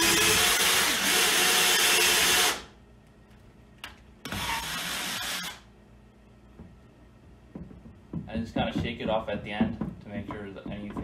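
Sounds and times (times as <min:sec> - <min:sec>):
cordless drill with hole saw: 0:00.0 - 0:02.7, 0:04.3 - 0:05.6.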